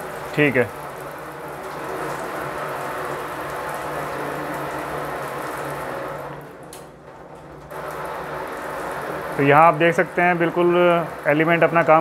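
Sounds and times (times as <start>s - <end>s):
water splashing into steel sink: 0.0s - 6.4s.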